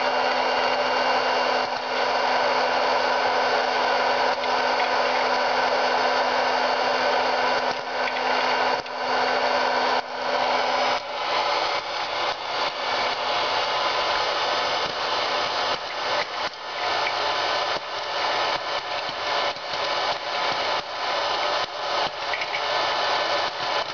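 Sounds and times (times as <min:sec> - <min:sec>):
popcorn maker fan hissing: 0:00.0 - 0:23.9
irregular clicks: 0:07.1 - 0:09.0, 0:10.9 - 0:23.9.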